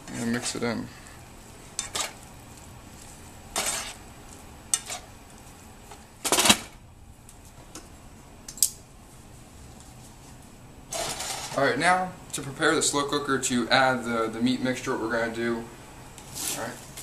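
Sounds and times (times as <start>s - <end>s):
spatula scraping meat in frying pan: 3.5s - 4.0s.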